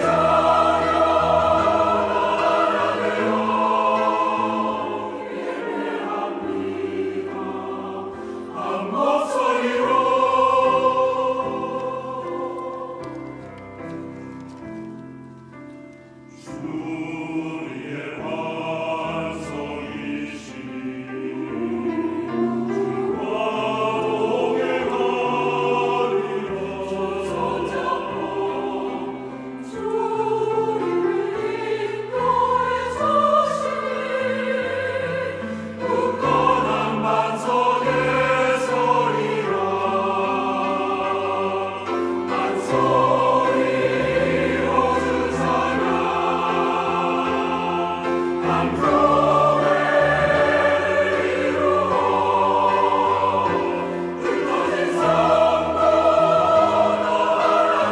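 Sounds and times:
choir singing in parts: 0:00.0 - 0:14.2, 0:16.3 - 0:57.9.

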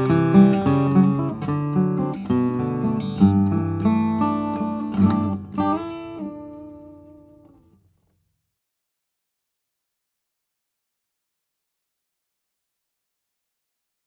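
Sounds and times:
acoustic guitar fingerstyle: 0:00.0 - 0:08.1.

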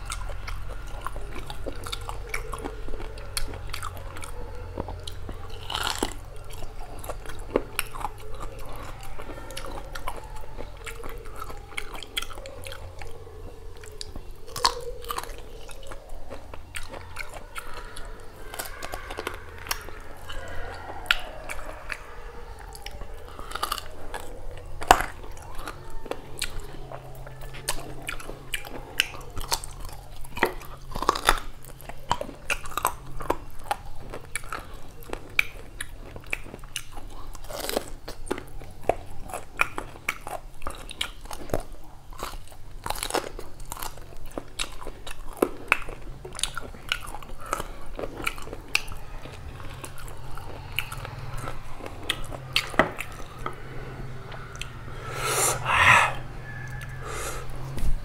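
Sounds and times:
person chewing and lip smacking: 0:00.0 - 0:57.9
rush of breath: 0:50.1 - 0:58.0.

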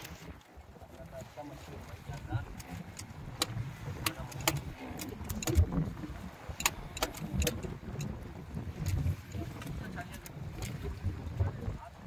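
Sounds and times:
sea around a boat: 0:00.0 - 0:12.0
wind rumble: 0:00.0 - 0:12.0
sharp clicks and knocks: 0:02.6 - 0:05.8, 0:06.6 - 0:07.7.

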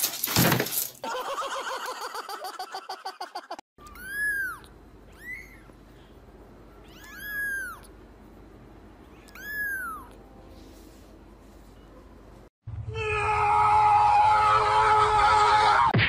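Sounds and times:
kitten mewing: 0:03.8 - 0:05.7, 0:06.8 - 0:07.9, 0:09.2 - 0:10.2.

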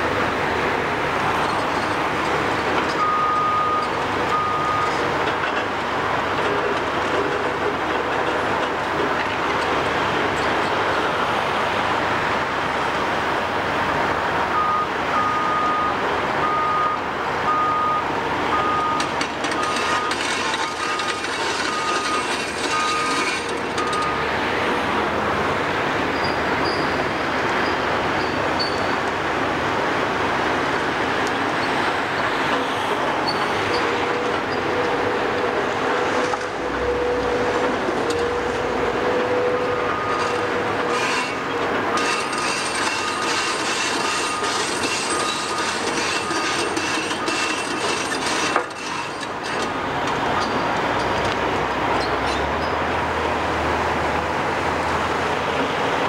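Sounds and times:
excavator diesel engines: 0:00.0 - 0:56.0
excavator travel alarm beeps: 0:02.9 - 0:05.0, 0:14.5 - 0:24.3, 0:39.4 - 0:41.3, 0:41.9 - 0:49.1.

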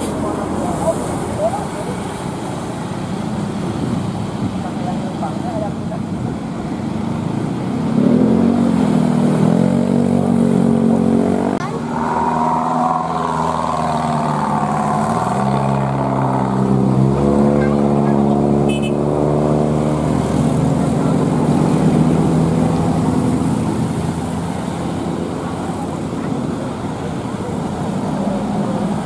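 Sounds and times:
bus engine: 0:00.0 - 0:29.0
traffic noise: 0:00.0 - 0:29.0
musical bus horn tune: 0:18.7 - 0:19.0.

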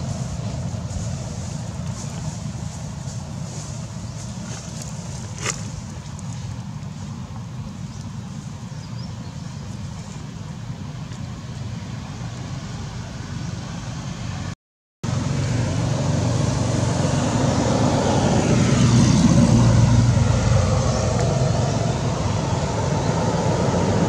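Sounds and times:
motor vehicle rumble: 0:00.0 - 0:24.0.

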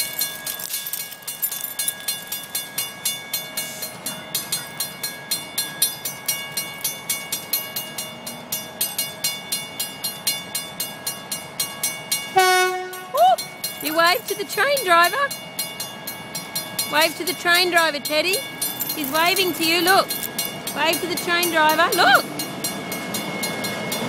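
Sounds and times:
level crossing bell ringing: 0:12.1 - 0:24.0.

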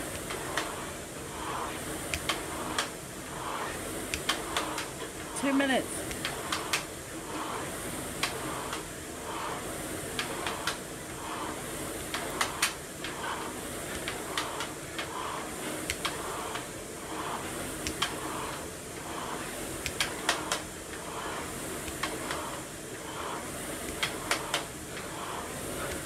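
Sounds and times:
rowing machine flywheel whooshing: 0:00.0 - 0:26.0
sharp machine clicks: 0:01.4 - 0:07.6, 0:12.1 - 0:20.6.

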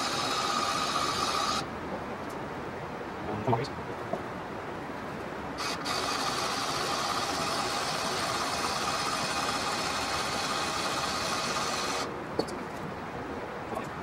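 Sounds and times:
small electric motor running: 0:00.0 - 0:01.7, 0:05.6 - 0:12.1
faint steady hum: 0:00.0 - 0:14.0.

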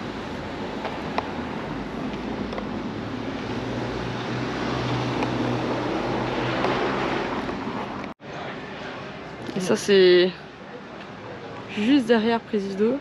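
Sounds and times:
passing vehicle engine hum: 0:00.0 - 0:08.2
outdoor background noise: 0:00.0 - 0:13.0.

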